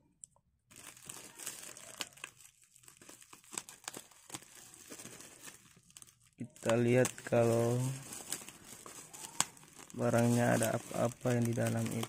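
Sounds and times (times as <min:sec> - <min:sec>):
plastic wrapping crinkling: 0:00.7 - 0:12.0.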